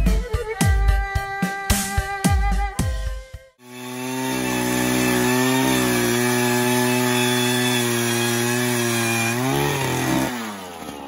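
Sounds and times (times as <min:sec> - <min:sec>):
ice auger engine running: 0:03.6 - 0:11.0.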